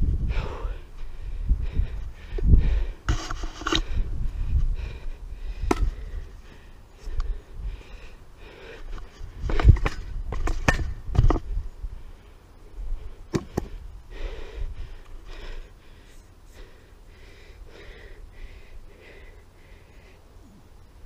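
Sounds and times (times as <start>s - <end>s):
person breathing hard: 0.0s - 10.1s, 11.4s - 21.0s.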